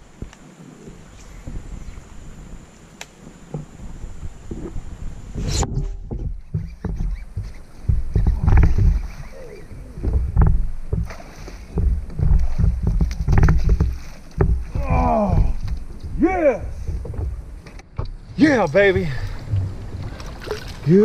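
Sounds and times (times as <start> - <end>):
low thuds: 0.0 - 21.0
water splashing against kayak hull: 3.2 - 21.0
man exclaiming: 14.7 - 15.6
fish thrashing at surface: 19.3 - 20.9.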